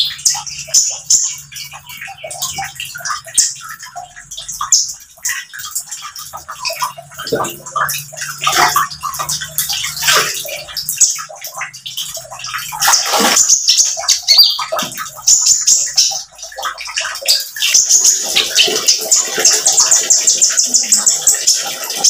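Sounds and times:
trickling running water: 0:00.0 - 0:22.0
bird twittering: 0:13.3 - 0:21.6.

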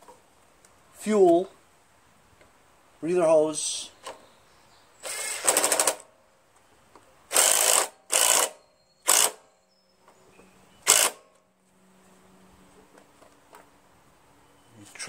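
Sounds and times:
cordless drill bursts: 0:05.0 - 0:06.1, 0:07.3 - 0:09.5, 0:10.8 - 0:11.2.

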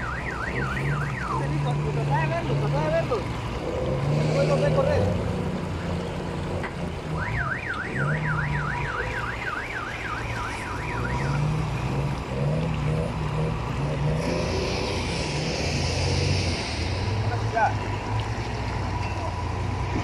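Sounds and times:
warbling electronic alarm: 0:00.0 - 0:01.8, 0:07.2 - 0:11.8
river rushing: 0:10.2 - 0:20.0.

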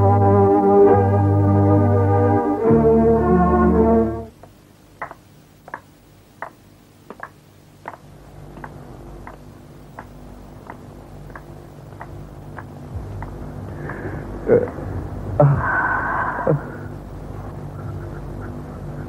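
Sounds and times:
low steady hum: 0:00.0 - 0:19.0
footsteps walking slowly: 0:04.4 - 0:14.8.

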